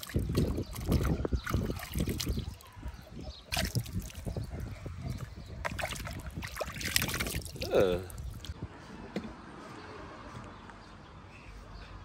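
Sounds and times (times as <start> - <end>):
water trickling and splashing: 0.0 - 8.6.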